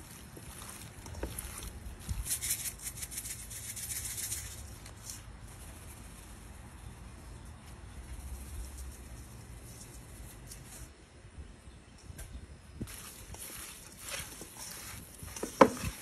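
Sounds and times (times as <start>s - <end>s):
handling raw chicken wings: 0.0s - 5.2s
seasoning shaker rattling: 0.0s - 6.4s.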